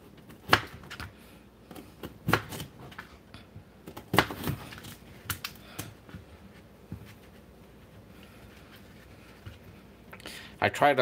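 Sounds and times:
knife chopping potato: 0.2 - 1.1, 1.7 - 3.1, 3.8 - 5.9.

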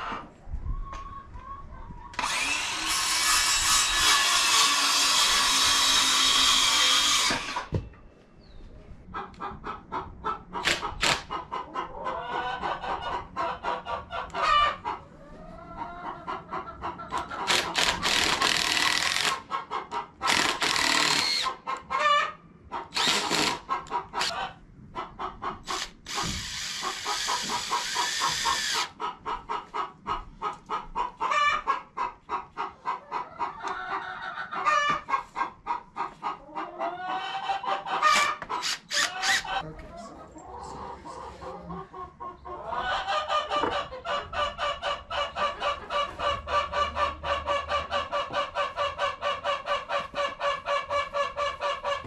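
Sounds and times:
chickens clucking: 0.0 - 2.2, 7.3 - 20.7, 21.4 - 52.0.

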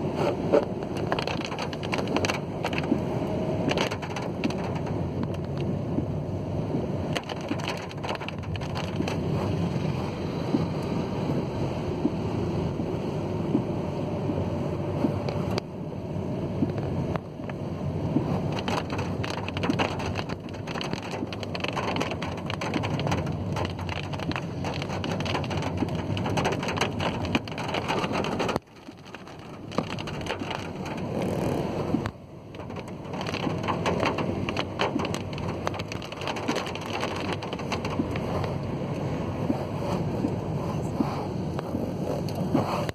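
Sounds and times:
rain hitting car: 0.0 - 42.9
tyres hissing on wet road: 0.0 - 42.9.

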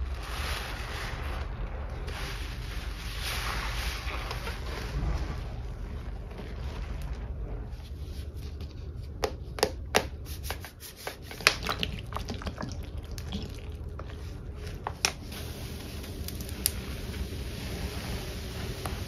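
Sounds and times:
liquid pouring into foam: 11.3 - 19.0.

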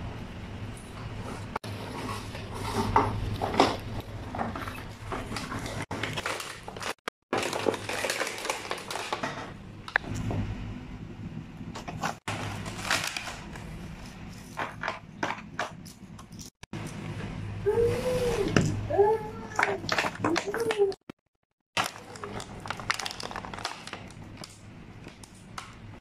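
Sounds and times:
plastic packaging crackling: 4.8 - 10.0, 12.1 - 14.7, 21.8 - 25.9.

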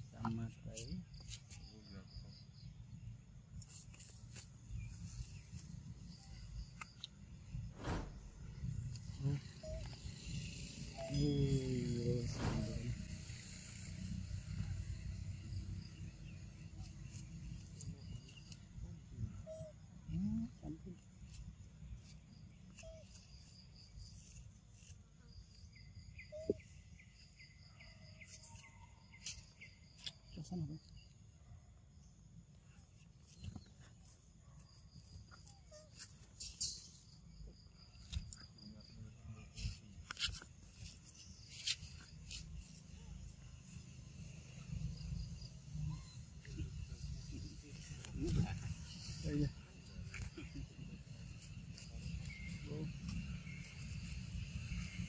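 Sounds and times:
insects chirping: 0.0 - 55.0
short sharp squeak: 7.7 - 8.6, 9.3 - 13.0.

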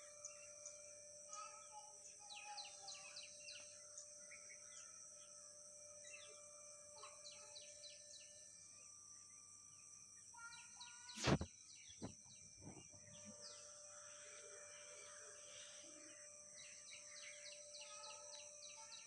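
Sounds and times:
small birds chirping: 0.2 - 5.3, 10.2 - 13.7, 15.4 - 19.0
steady high-pitched hiss: 5.6 - 19.0.

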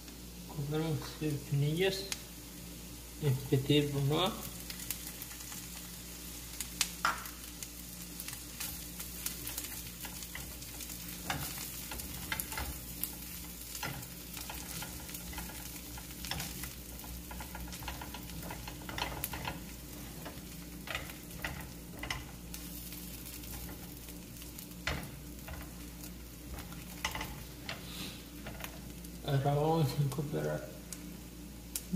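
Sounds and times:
food sizzling in a frying pan: 0.0 - 31.9
spatula scraping a pan: 8.6 - 28.9.

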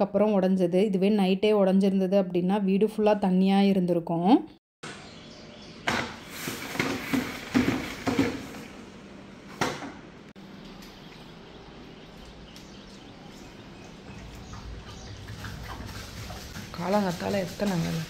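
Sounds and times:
plastic mop bucket clunks and scrapes: 5.9 - 8.8.

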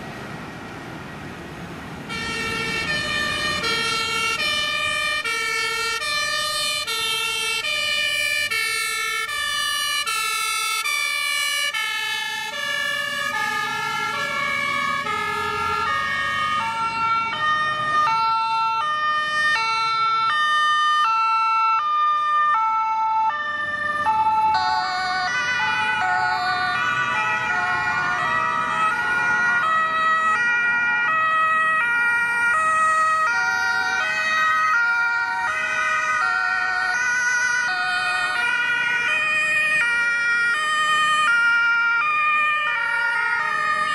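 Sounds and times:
vehicle engines: 0.0 - 43.9
two-tone sirens: 1.6 - 43.9
wavering siren: 2.0 - 43.9.

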